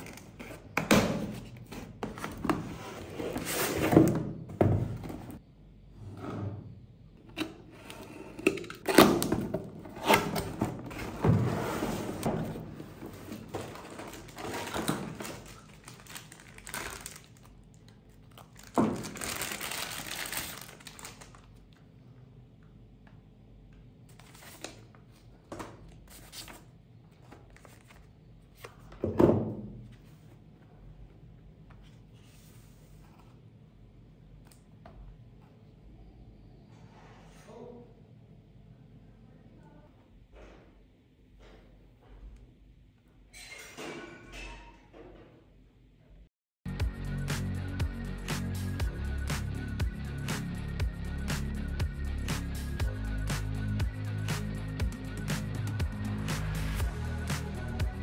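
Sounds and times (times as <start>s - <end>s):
plastic wrap rustling: 13.0s - 21.6s.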